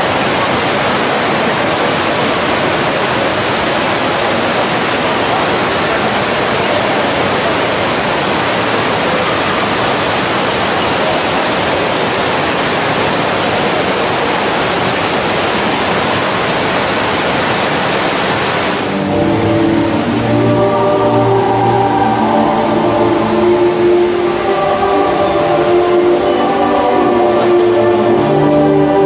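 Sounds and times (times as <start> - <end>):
loud steady rushing noise: 0.0 - 29.0
music: 18.8 - 29.0.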